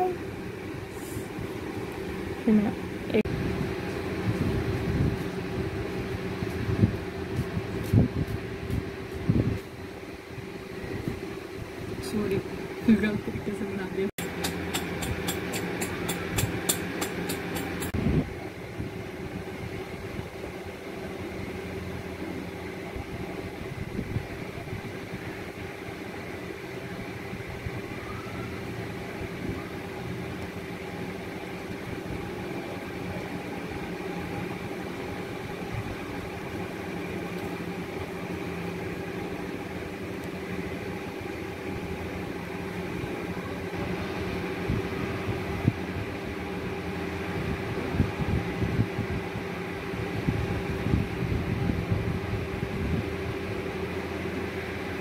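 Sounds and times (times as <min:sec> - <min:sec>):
steady mechanical hum: 0:00.0 - 0:55.0.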